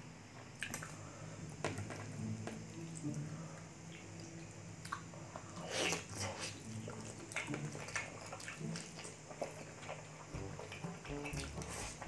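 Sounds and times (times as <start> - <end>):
chewing and lip-smacking: 3.9 - 12.0
meat squishing: 4.0 - 12.0.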